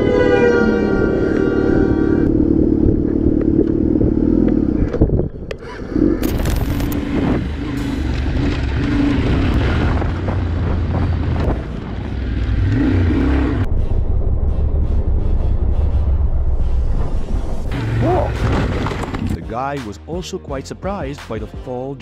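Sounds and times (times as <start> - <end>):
motorcycle engine at speed: 0.0 - 13.7
wind noise: 1.0 - 12.8
dirt bike engine revving: 5.6 - 13.7.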